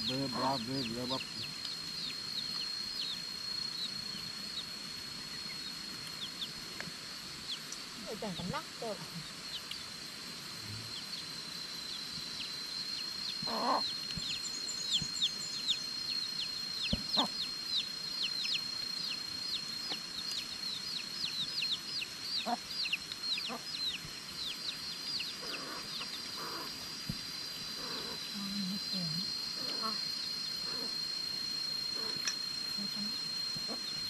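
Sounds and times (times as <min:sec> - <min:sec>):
steady high-pitched whine: 0:00.0 - 0:34.0.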